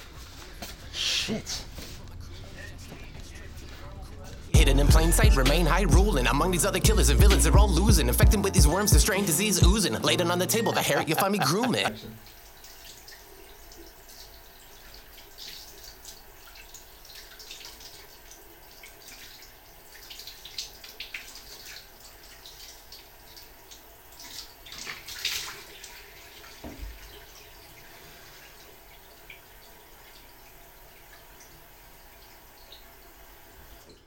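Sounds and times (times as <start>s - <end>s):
water drips: 11.2s - 33.9s
water splashing in a sink: 11.6s - 34.0s.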